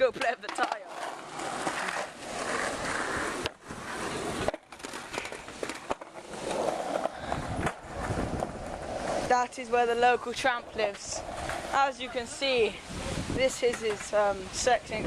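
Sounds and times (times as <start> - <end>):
wheels clicking over cracks: 0.0 - 9.3
skateboard wheels rolling on pavement: 0.0 - 15.0.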